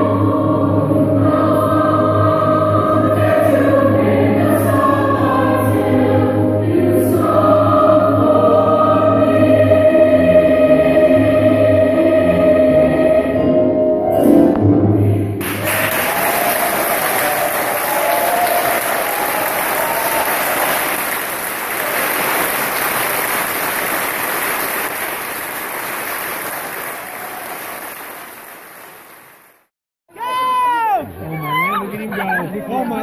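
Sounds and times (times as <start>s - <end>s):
children's choir singing: 0.0s - 13.9s
audience applause: 15.4s - 29.7s.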